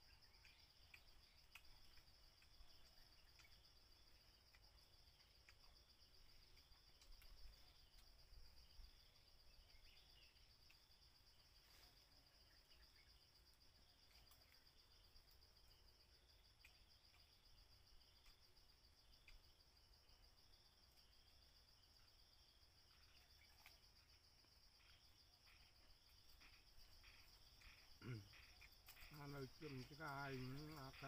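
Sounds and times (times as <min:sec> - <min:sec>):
insect chirring: 0:00.0 - 0:31.0
faint clicks: 0:00.1 - 0:08.6, 0:10.6 - 0:10.9, 0:16.5 - 0:17.2, 0:18.1 - 0:18.5, 0:19.1 - 0:19.6, 0:24.8 - 0:31.0.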